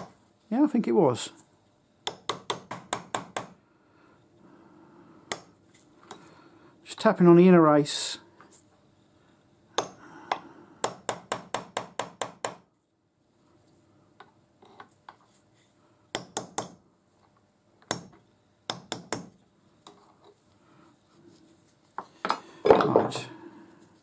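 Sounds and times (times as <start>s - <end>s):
hammer tapping on steel punch: 2.0s - 3.6s, 5.3s - 5.5s, 9.8s - 12.6s, 16.2s - 16.8s, 17.8s - 19.3s.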